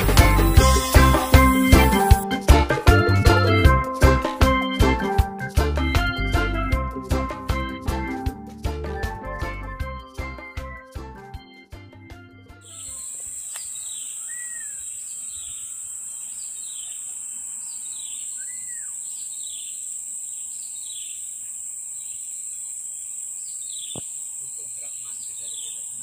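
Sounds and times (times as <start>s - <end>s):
high-pitched insect drone: 0.0s - 2.2s, 12.6s - 26.0s
falling chirp: 12.6s - 26.0s
short arched bird calls: 12.7s - 26.0s
single click: 13.5s - 13.7s.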